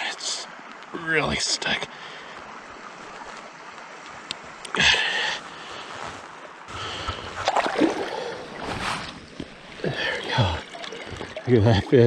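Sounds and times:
water splashing: 0:01.9 - 0:12.0
fish thrashing in water: 0:07.3 - 0:11.5.

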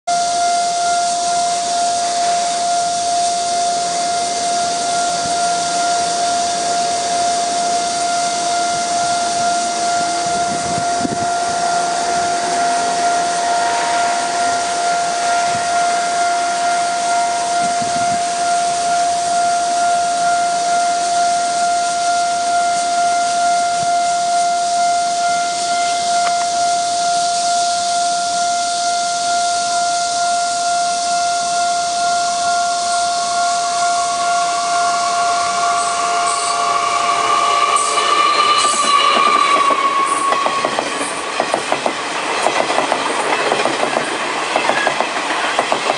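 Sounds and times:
level crossing warning bell: 0:00.1 - 0:45.9
steady high hiss: 0:00.1 - 0:45.9.

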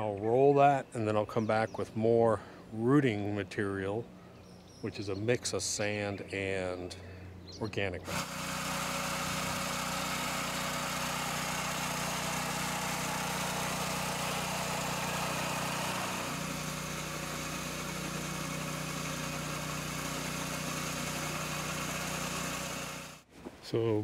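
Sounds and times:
lawn mower engine running: 0:08.0 - 0:23.2.

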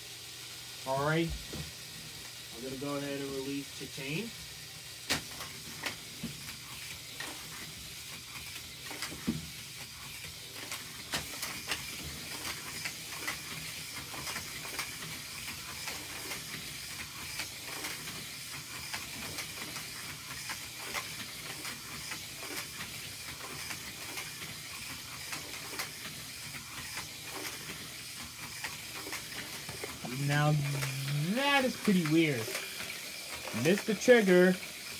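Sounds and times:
toy car motors hissing: 0:00.1 - 0:34.9
toy cars clicking over track joins: 0:04.9 - 0:34.9.

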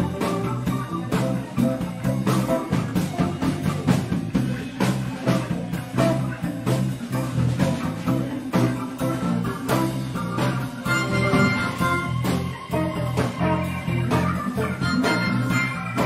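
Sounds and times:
bass line: 0:00.0 - 0:16.0
drum kit steady beat: 0:00.0 - 0:16.0
electric guitars: 0:00.0 - 0:16.0
keyboard: 0:00.0 - 0:16.0.

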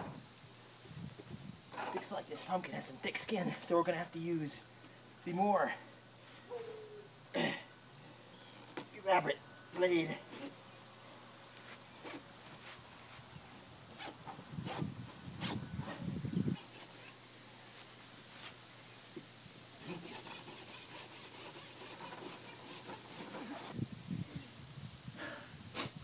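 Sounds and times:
knife sawing through pumpkin: 0:19.8 - 0:23.8.

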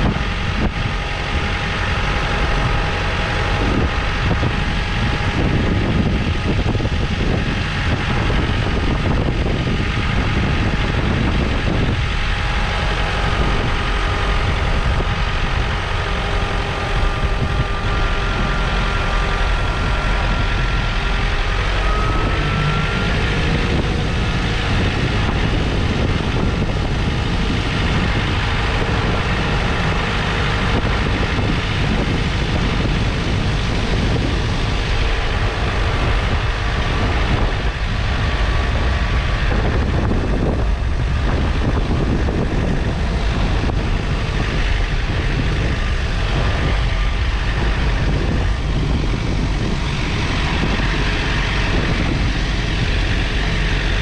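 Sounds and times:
faint whine: 0:00.0 - 0:54.0
tractor diesel engine running: 0:00.0 - 0:54.0
wind rumble on microphone: 0:00.0 - 0:54.0.

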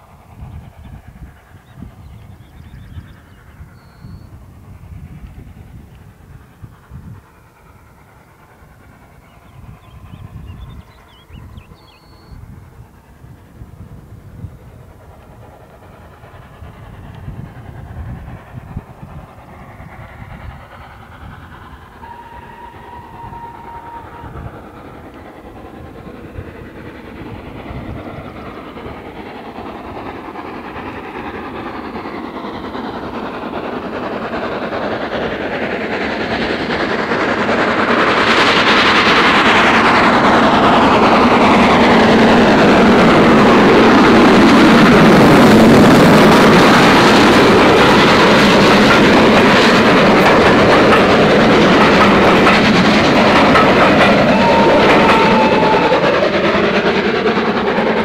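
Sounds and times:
steam locomotive exhaust: 0:00.0 - 0:58.0
train wheels clattering over rail joints: 0:12.7 - 0:58.0.

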